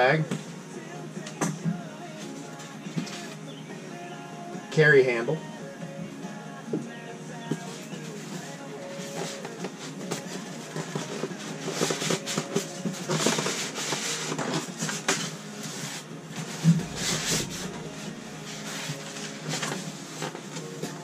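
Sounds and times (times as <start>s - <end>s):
styrofoam scraping against cardboard: 7.6s - 20.6s.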